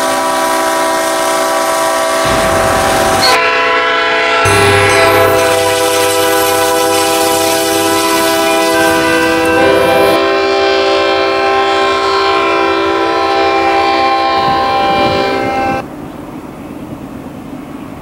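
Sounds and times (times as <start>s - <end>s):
locomotive air horn: 0.0s - 15.8s
low rumble: 2.2s - 3.4s.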